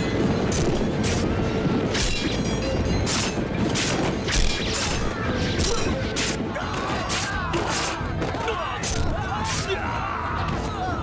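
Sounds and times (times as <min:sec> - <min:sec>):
orchestral film score: 0:00.0 - 0:11.0.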